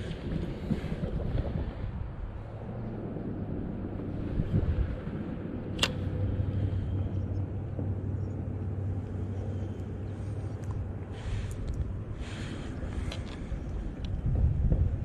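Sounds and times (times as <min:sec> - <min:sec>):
steady low hum: 0:00.0 - 0:15.0
wind on microphone: 0:00.0 - 0:15.0
sharp click: 0:05.8 - 0:06.1.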